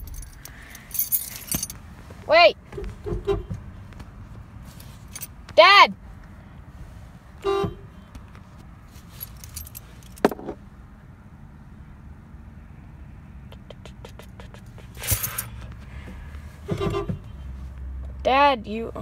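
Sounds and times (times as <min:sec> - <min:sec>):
car keys jangling and clicking: 0:00.0 - 0:01.8, 0:04.7 - 0:05.4, 0:09.0 - 0:10.6, 0:14.2 - 0:15.7.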